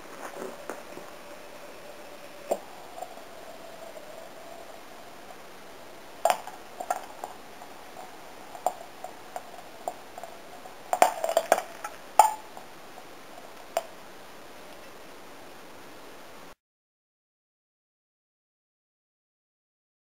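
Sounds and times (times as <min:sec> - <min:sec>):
sodium popping in water: 0:02.3 - 0:14.0.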